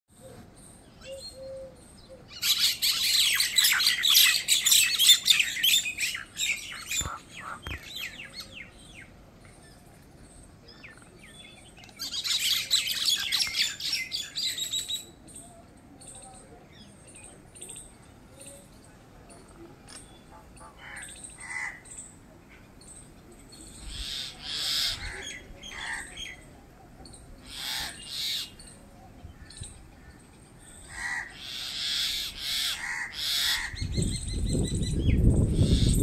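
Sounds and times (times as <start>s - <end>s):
mynas chattering calls: 2.4s - 8.7s, 20.0s - 22.2s, 23.6s - 34.4s, 35.5s - 36.0s.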